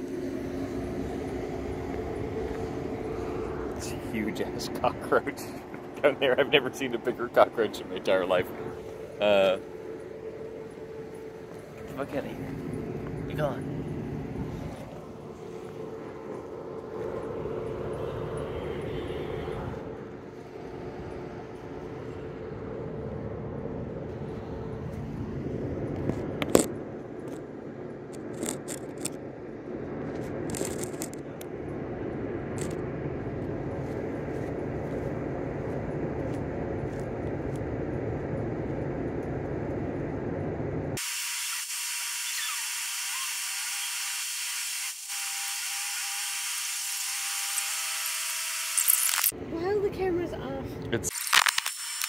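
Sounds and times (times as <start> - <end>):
faint steady tone: 0.0 - 25.8
low outdoor rumble: 0.0 - 41.0, 49.3 - 51.1.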